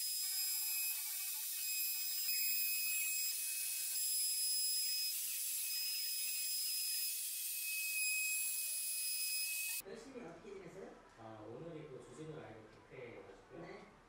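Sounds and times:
electric router cutting wood: 0:00.0 - 0:09.8.

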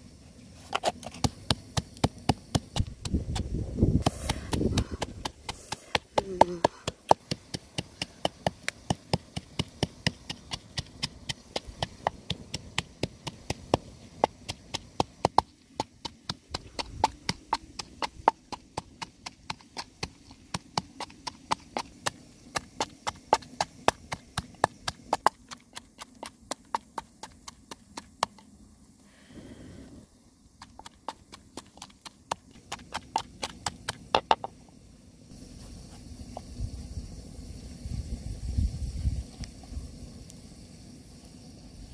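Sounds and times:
pestle pounding in wooden mortar: 0:01.1 - 0:28.4, 0:30.6 - 0:34.5.

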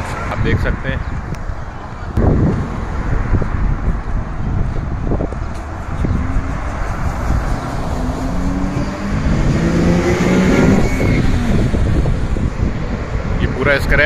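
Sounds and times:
wind rumble on microphone: 0:00.0 - 0:14.0
car engine driving by: 0:05.0 - 0:12.8.

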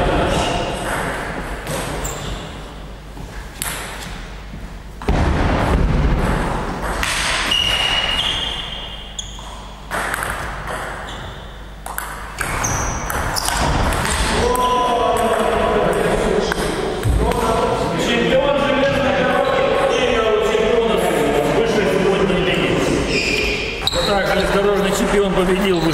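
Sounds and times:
person talking: 0:24.0 - 0:25.9.

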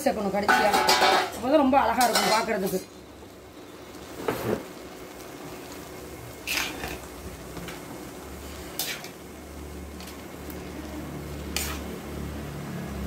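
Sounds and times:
ladle stirring rice: 0:11.4 - 0:12.0
ladle scraping metal pot: 0:11.5 - 0:12.0.

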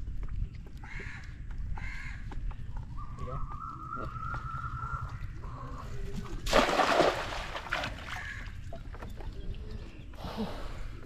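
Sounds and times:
net splashing into water: 0:06.4 - 0:08.5.

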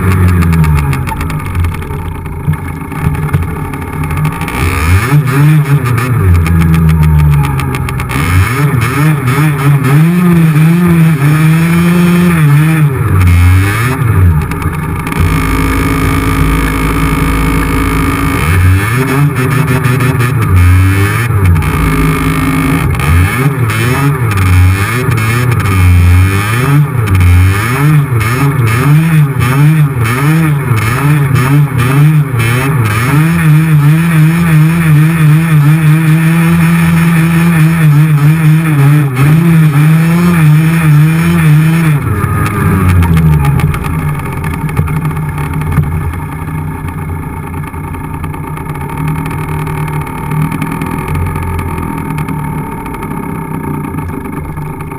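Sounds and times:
two-stroke motorcycle engine: 0:00.0 - 0:54.9.

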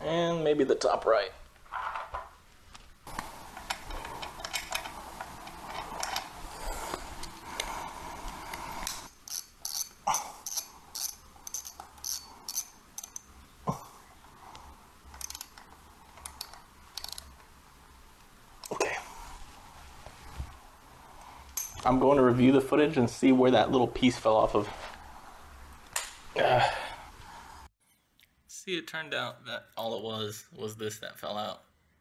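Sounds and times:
ratchet wrench clicking: 0:08.8 - 0:13.3, 0:15.1 - 0:15.6, 0:16.2 - 0:17.3.

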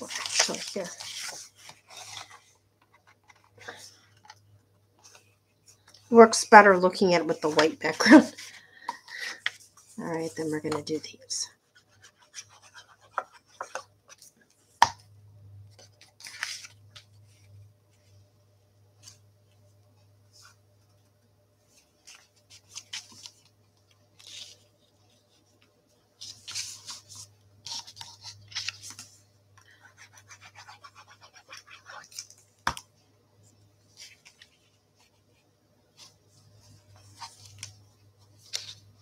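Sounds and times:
paper rustling: 0:00.0 - 0:04.4, 0:15.7 - 0:18.2, 0:21.7 - 0:29.2, 0:33.8 - 0:39.0
low steady hum: 0:00.0 - 0:39.0.

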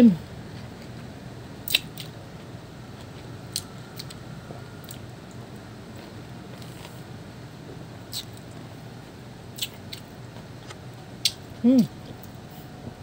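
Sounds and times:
faint background hum: 0:00.0 - 0:13.0
wet chewing clicks: 0:01.7 - 0:02.2, 0:08.1 - 0:08.6, 0:09.6 - 0:11.4.

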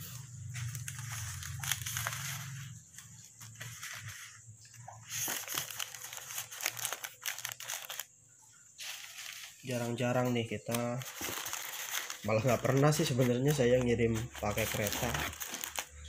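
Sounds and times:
plastic bags crinkling: 0:00.0 - 0:16.0.

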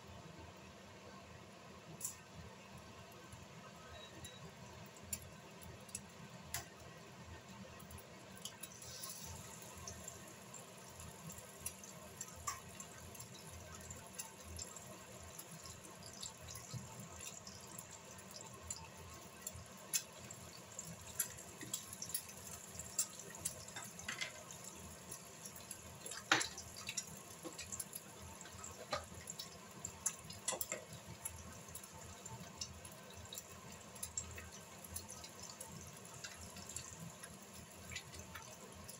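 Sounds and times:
eggs sizzling in oil: 0:08.2 - 0:38.9
oil popping and crackling: 0:08.3 - 0:38.9.

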